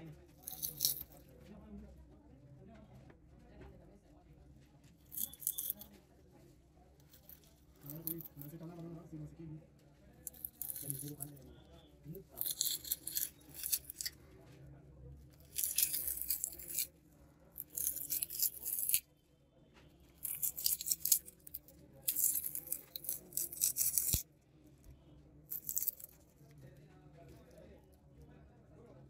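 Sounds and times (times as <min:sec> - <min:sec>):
adhesive foil crackling and tearing: 0:15.5 - 0:16.9, 0:20.2 - 0:24.2.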